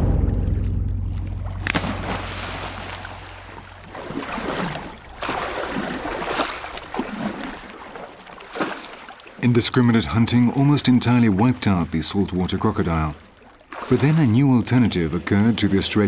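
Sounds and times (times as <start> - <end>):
low hum: 0.0 - 7.8
water splashing and sloshing: 0.0 - 16.0.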